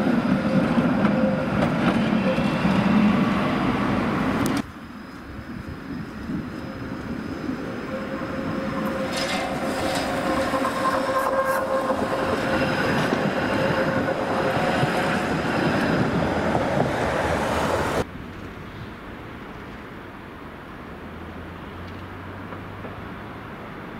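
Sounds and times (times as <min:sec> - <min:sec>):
tram wheels rumbling on rails: 0:00.0 - 0:18.1
tram whine: 0:00.0 - 0:18.1
street noise: 0:00.0 - 0:23.9.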